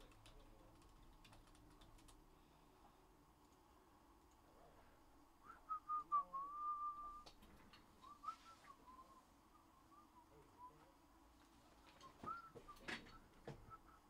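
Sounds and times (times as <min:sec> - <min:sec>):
person whistling: 0:05.4 - 0:07.3, 0:08.0 - 0:10.8, 0:12.0 - 0:14.0.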